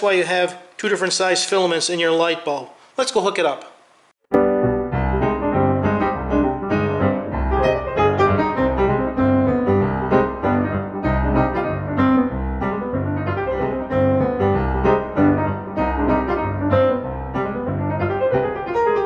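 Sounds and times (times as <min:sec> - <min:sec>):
piano music: 0:04.3 - 0:19.0.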